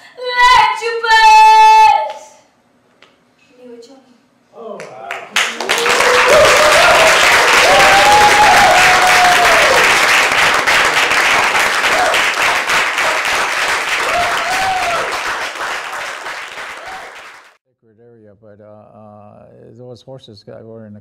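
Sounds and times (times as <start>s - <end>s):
audience applauding: 4.8s - 17.6s.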